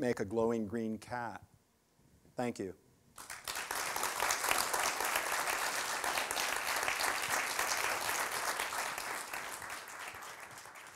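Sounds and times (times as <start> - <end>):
audience applauding: 3.2 - 10.9.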